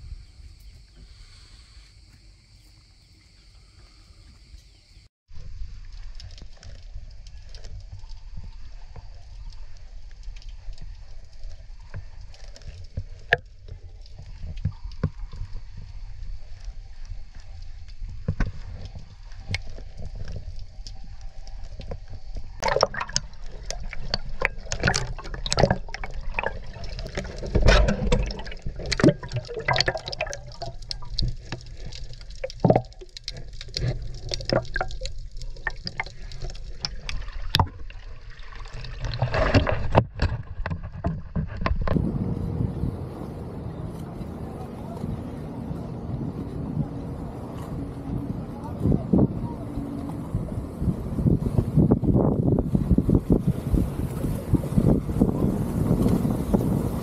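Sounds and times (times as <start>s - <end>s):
sharp splashes and bubbling: 5.3s - 42.0s
water sloshing and gurgling: 5.3s - 43.1s.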